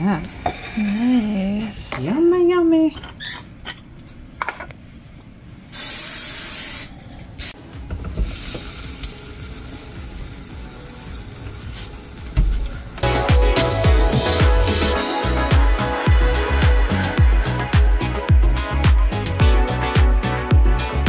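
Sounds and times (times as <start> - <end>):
loud hiss: 5.7 - 7.6
music: 7.6 - 21.0.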